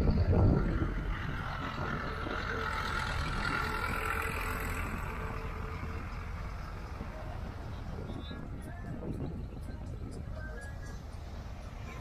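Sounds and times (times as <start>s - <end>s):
tractor engine humming: 0.0s - 12.0s.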